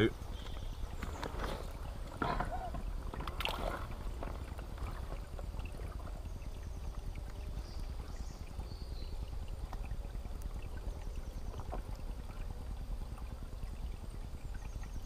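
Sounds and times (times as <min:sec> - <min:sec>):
stream water gurgling and splashing: 0:00.0 - 0:15.0.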